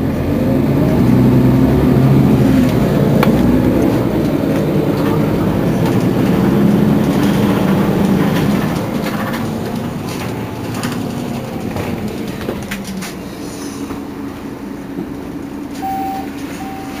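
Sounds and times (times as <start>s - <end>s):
bus diesel engine idling: 0.0s - 17.0s
short high beep: 15.8s - 17.0s.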